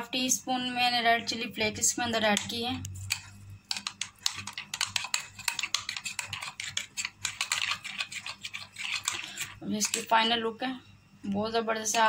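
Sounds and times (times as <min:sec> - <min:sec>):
spoon scraping glass bowl: 0:02.5 - 0:10.4.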